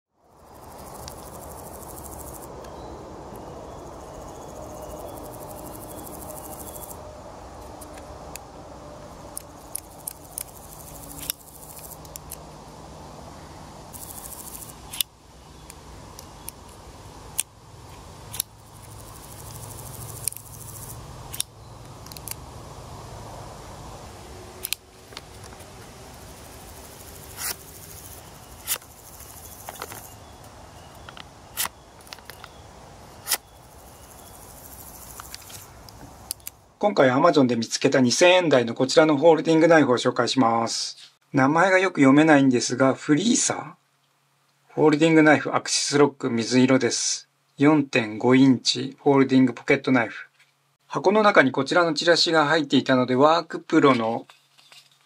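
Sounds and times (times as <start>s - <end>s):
outdoor background noise: 0.1s - 55.0s
folding knife clicking: 21.3s - 22.4s.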